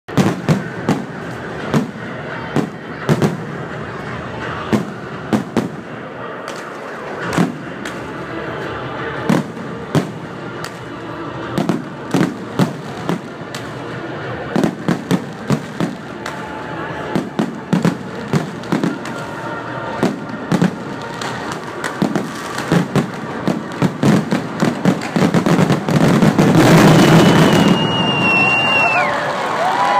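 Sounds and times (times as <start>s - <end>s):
firework bangs: 0.1s - 29.9s.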